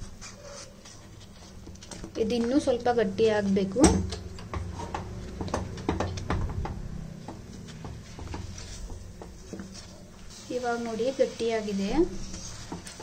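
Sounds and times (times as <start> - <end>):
spatula stirring thick food in pan: 7.3 - 13.0.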